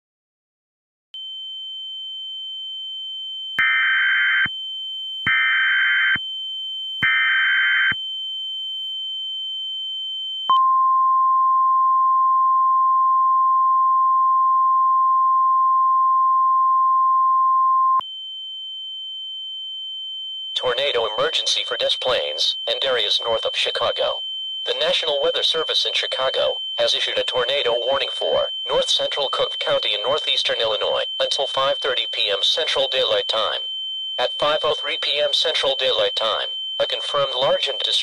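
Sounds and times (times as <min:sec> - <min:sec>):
warning alarm tone: 0:01.2 - 0:10.7, 0:18.0 - 0:38.0.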